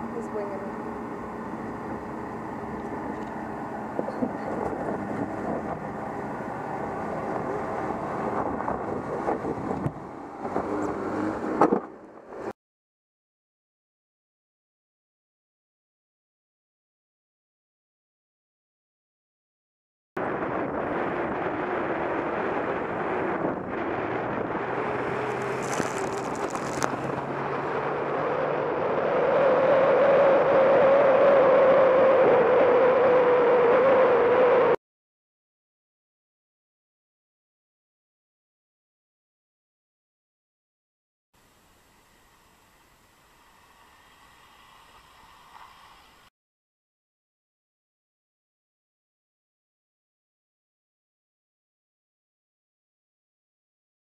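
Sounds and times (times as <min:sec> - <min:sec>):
car engine at low revs: 0:00.0 - 0:12.5, 0:20.2 - 0:34.8
wind buffeting microphone: 0:03.9 - 0:11.6, 0:20.2 - 0:28.2
tyres crunching over stones: 0:25.1 - 0:27.2.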